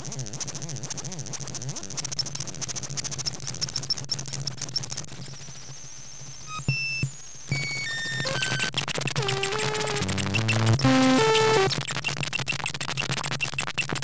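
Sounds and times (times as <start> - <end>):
crackling clicks: 7.5 - 12.2
gliding high tone: 9.2 - 11.4
short high bleeps: 9.4 - 11.5.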